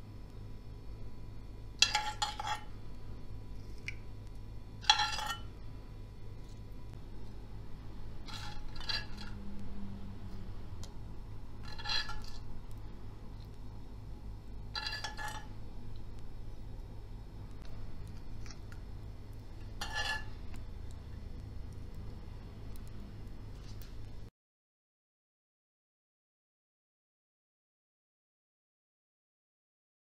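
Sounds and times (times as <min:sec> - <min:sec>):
metal spoon clinking on cookware: 0:01.8 - 0:02.7, 0:04.8 - 0:05.5, 0:14.8 - 0:15.5, 0:19.6 - 0:20.5.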